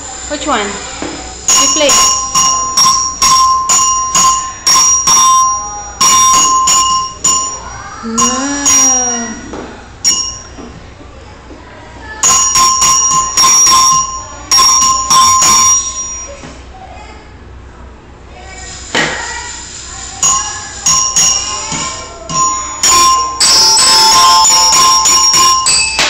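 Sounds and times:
mallet striking metal tone bars: 1.5 - 10.6, 12.2 - 16.4, 20.3 - 26.0.

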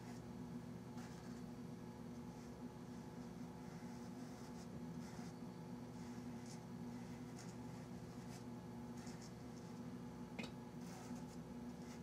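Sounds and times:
steady low hum: 0.0 - 12.0
paintbrush strokes on canvas: 2.3 - 9.8, 10.8 - 12.0.

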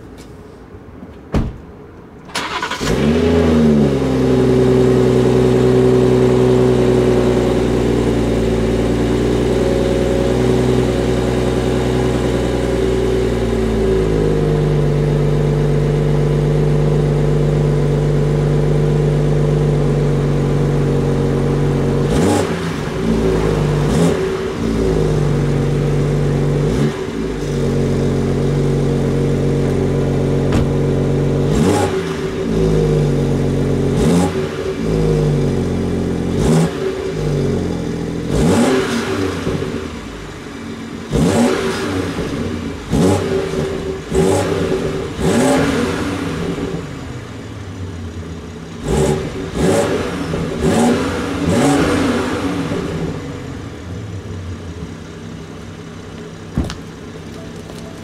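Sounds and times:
engine revving: 2.4 - 14.8, 20.8 - 47.5, 48.7 - 53.8
car exhaust idling: 4.1 - 38.6, 50.2 - 58.0.

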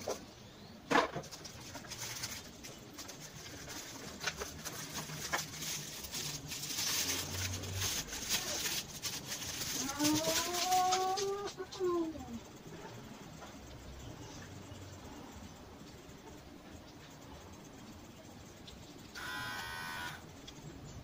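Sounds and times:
plastic packaging crinkling: 1.2 - 11.6.

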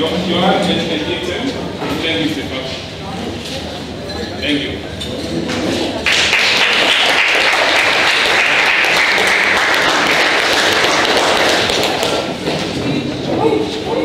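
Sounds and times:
audience applauding: 6.0 - 12.3.

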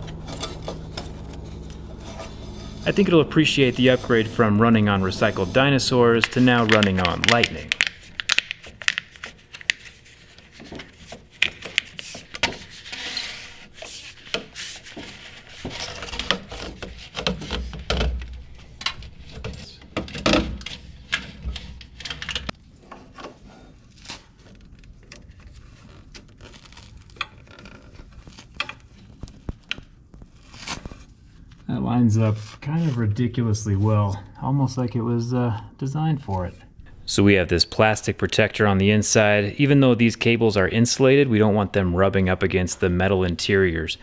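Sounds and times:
low thumps: 0.0 - 7.8
cables scraping against metal: 0.0 - 8.2.

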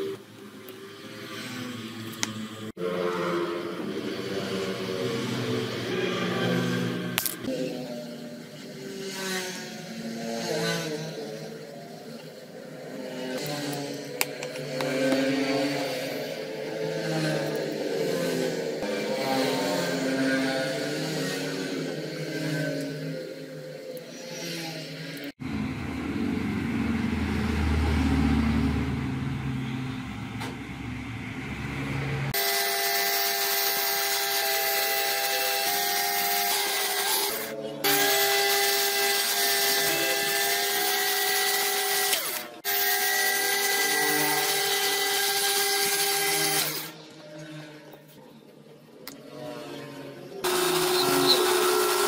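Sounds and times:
low rumbling: 25.4 - 32.4
lathe motor whine: 49.8 - 52.0.

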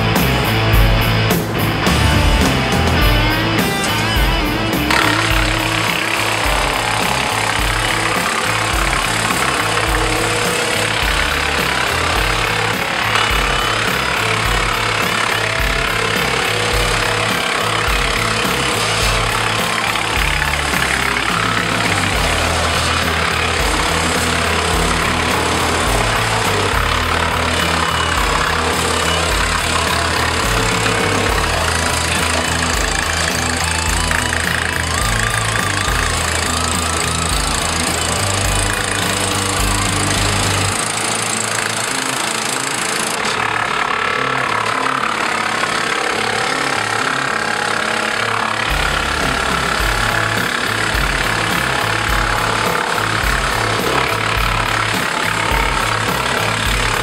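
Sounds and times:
background music with steady beat: 0.0 - 43.5, 48.1 - 57.0
tractor engine droning: 0.0 - 57.0
wood chipper grinding branch: 0.0 - 57.0.

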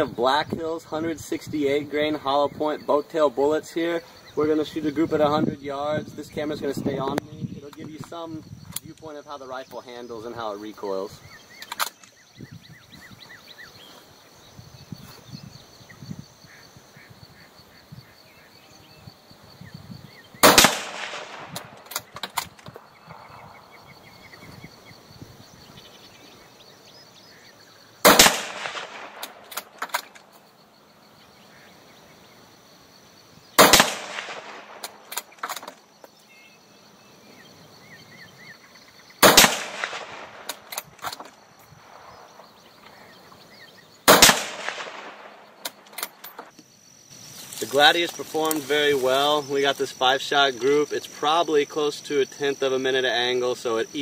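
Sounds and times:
rifle shots with echo: 20.4 - 22.2, 28.0 - 30.0, 33.6 - 35.1, 39.2 - 40.7, 44.1 - 45.9.

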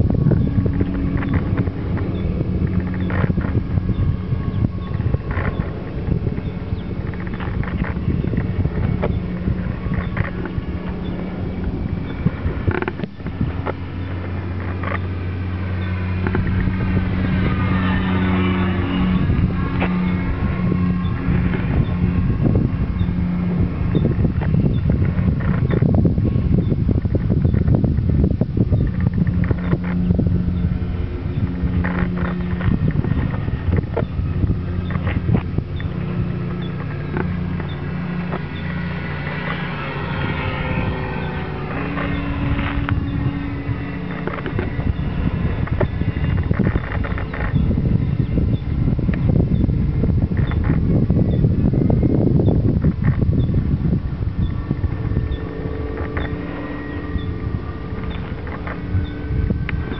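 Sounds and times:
model plane propeller whine: 0.0 - 59.9
steady higher tone: 0.0 - 59.9
steady low hum: 0.0 - 59.9
wind on microphone: 0.0 - 59.9.

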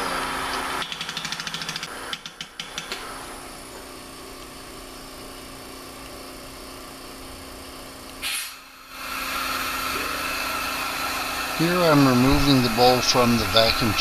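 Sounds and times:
wood lathe running: 8.9 - 14.0.

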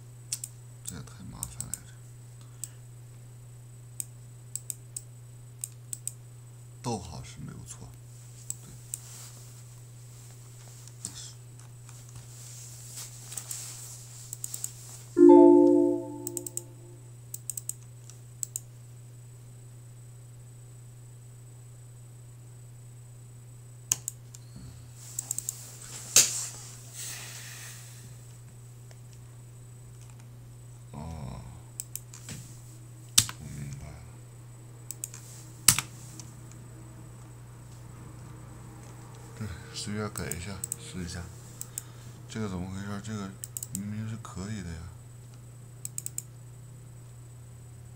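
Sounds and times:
error chime: 15.2 - 17.0.

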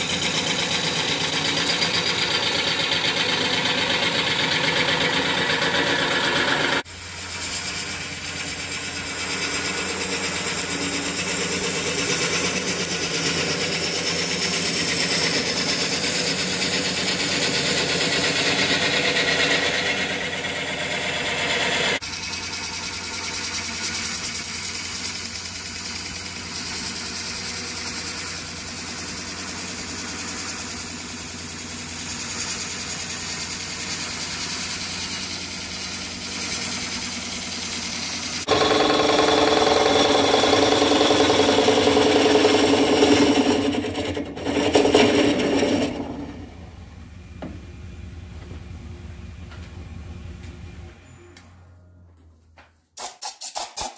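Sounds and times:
wood lathe humming: 0.0 - 47.5
gouge cutting wood hiss: 21.6 - 43.5.

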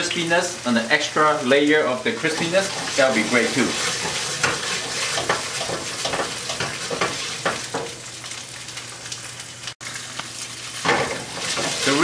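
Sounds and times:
tofu sizzling in hot oil: 0.0 - 12.0
frying pan shaken: 2.3 - 7.8.

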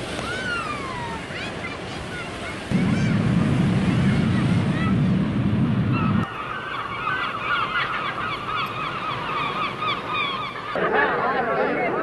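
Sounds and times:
sea surf washing: 0.0 - 12.0
flock of birds calling: 5.9 - 12.0.

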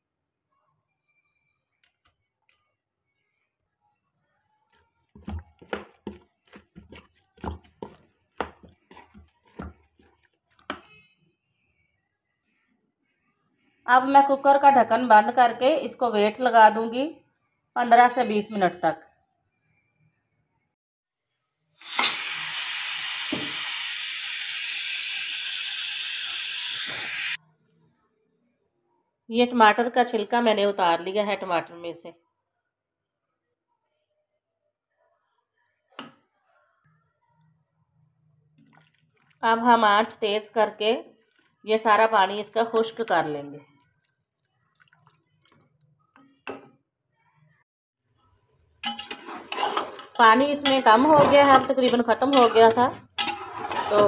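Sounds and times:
spoon knocking and scraping pot: 5.2 - 11.0, 48.8 - 54.0
pressure cooker steam hiss: 21.3 - 27.4.

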